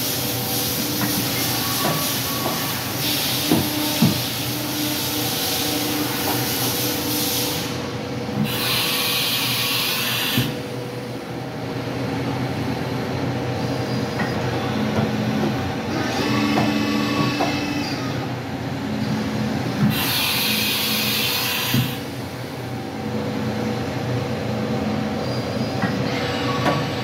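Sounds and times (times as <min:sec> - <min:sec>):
hiss: 0:00.0 - 0:10.6, 0:19.9 - 0:22.1
steady machine hum: 0:00.0 - 0:27.0
machine axis drive whine: 0:12.2 - 0:27.0.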